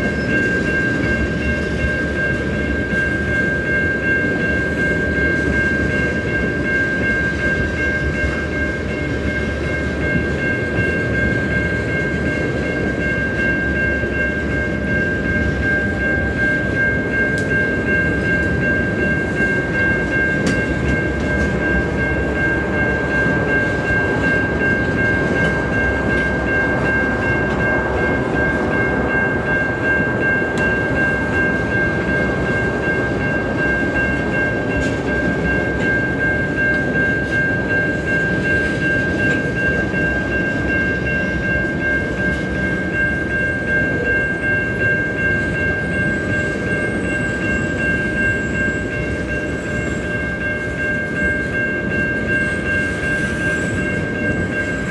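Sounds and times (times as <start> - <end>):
crossing warning bell ringing: 0.0 - 54.9
freight train wheels rumbling: 0.0 - 54.9.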